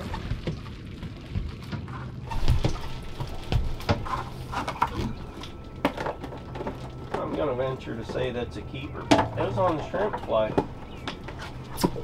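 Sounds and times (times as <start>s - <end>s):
steady low hum: 0.7s - 12.0s.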